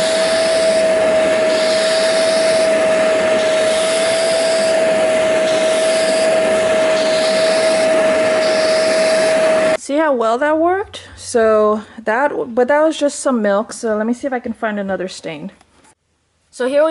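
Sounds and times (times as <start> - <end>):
carpet cleaner motor whine: 0.0 - 9.8
hand tool sucking at carpet: 0.0 - 9.8.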